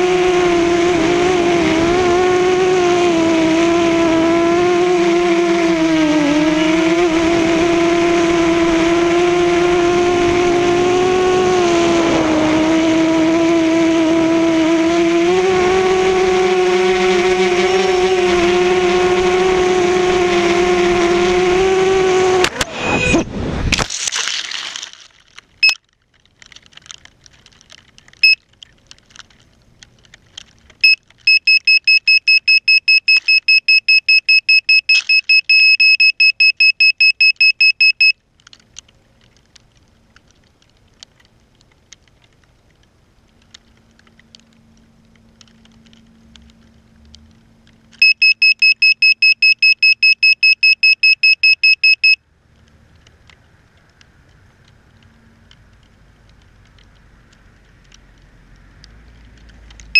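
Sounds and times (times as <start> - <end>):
electronic buzzer beeping: 30.8 - 38.1, 48.0 - 52.2.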